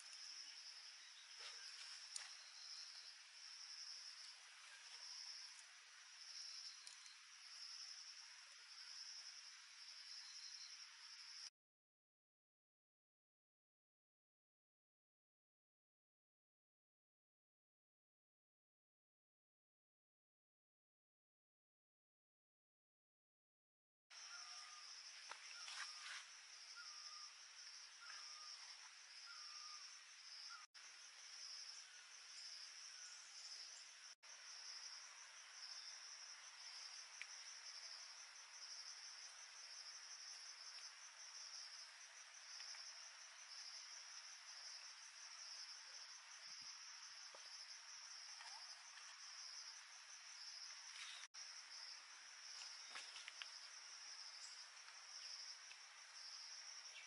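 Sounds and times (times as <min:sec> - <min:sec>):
insects chirring: 0:00.0 - 0:11.5, 0:24.1 - 0:57.0
short insect chirps: 0:00.0 - 0:11.5, 0:24.2 - 0:57.0.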